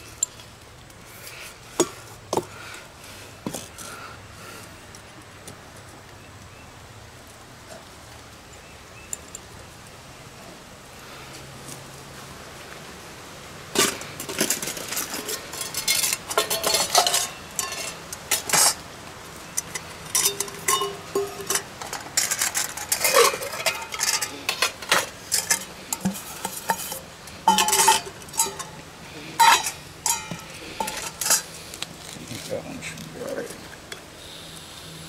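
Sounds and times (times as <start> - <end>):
metal dishes clinking: 13.8 - 18.8, 19.6 - 28.8, 29.4 - 31.5.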